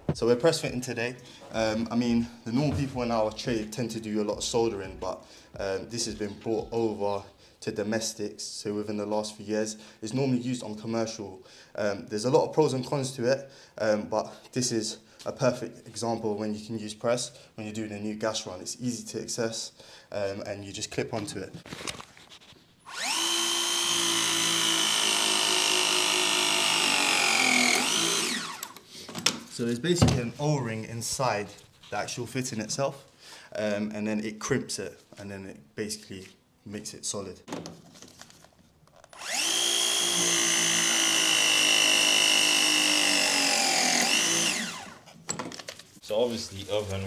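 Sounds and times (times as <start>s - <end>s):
pipe press tool motor whine: 22.9s - 28.8s, 39.1s - 45.0s.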